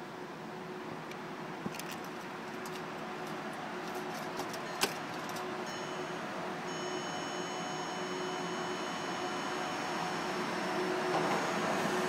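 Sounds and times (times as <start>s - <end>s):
high-pitched electronic whine: 5.6s - 12.0s.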